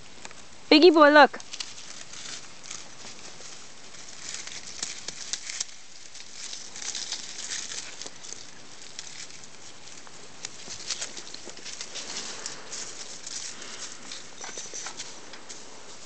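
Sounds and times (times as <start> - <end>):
dry leaves crackling and rustling: 1.3 - 16.0.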